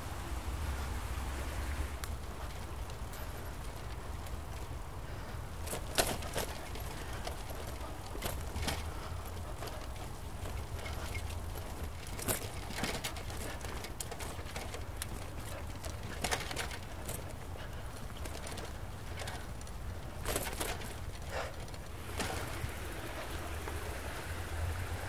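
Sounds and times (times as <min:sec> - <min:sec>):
bicycle rattles and knocks: 0:01.9 - 0:25.0.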